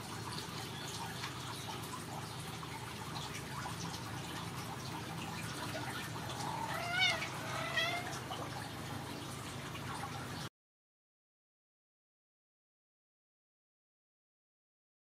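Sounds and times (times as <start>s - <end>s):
steady low hiss with ticks: 0.0s - 10.5s
cat meowing: 6.4s - 8.2s.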